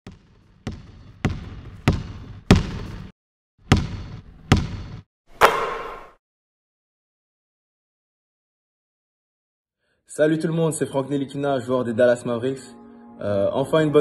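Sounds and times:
basketball bouncing: 0.1 - 6.2.

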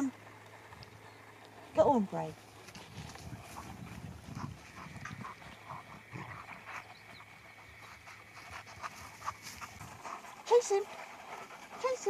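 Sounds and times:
dog panting softly: 3.5 - 12.0.

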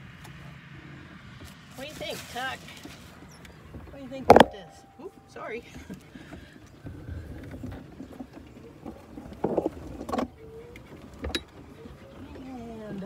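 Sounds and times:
grabber rustling and scraping litter: 1.4 - 3.2.

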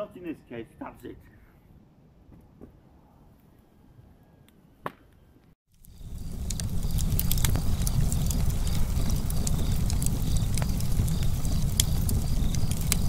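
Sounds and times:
fire flames roaring: 5.7 - 13.0
wood crackling and popping: 5.7 - 13.0.

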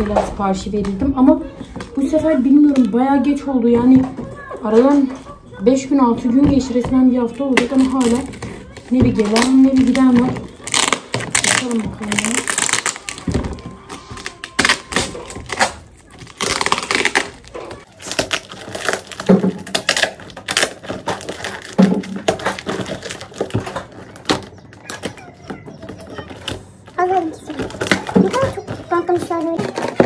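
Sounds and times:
packaging crinkling and tearing: 7.5 - 30.0.

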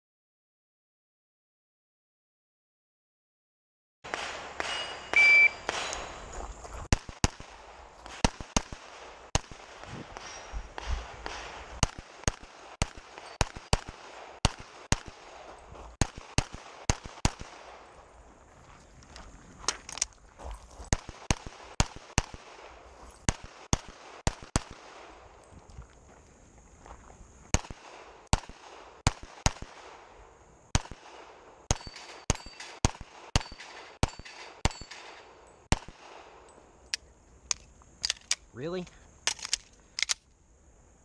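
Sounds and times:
pistol shots: 4.1 - 6.3, 6.9 - 15.4, 16.0 - 17.8, 20.9 - 25.2, 27.5 - 30.1, 30.7 - 36.4.

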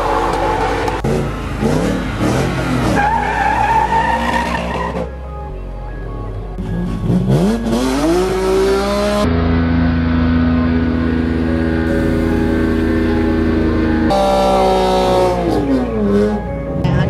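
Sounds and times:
race car engines revving: 0.0 - 5.2, 6.4 - 17.0
tyre squeal: 2.7 - 5.1
background music: 3.0 - 9.6, 10.3 - 17.0.

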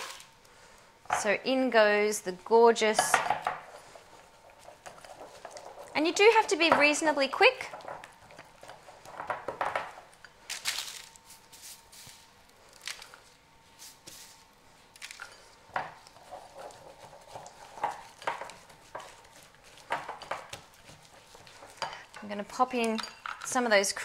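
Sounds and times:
baking paper rustling: 0.0 - 0.4, 10.4 - 22.8
spatula scraping a glass bowl: 3.7 - 7.2, 16.0 - 22.6.

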